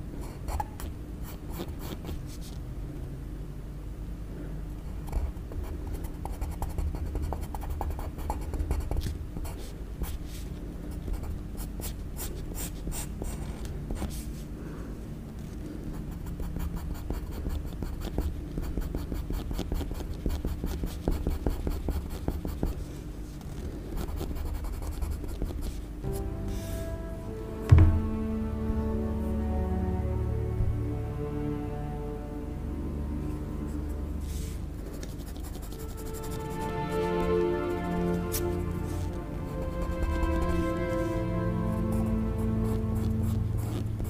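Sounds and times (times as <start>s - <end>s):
low steady hum: 0.0s - 44.0s
pencil scratching on paper: 0.2s - 2.4s, 5.1s - 10.3s, 15.9s - 22.9s, 23.9s - 25.8s, 35.0s - 36.7s.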